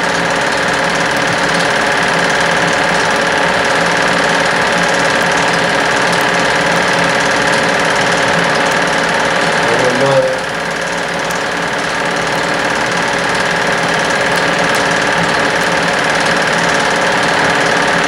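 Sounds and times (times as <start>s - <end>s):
film projector running: 0.0s - 18.0s.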